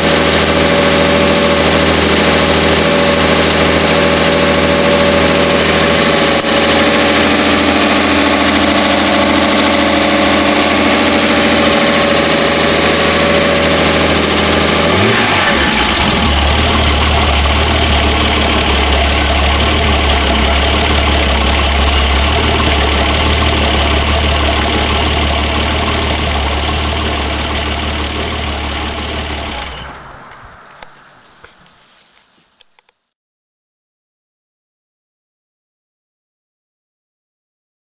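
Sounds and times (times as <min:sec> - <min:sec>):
boat engine idling and revving: 0:00.0 - 0:30.1.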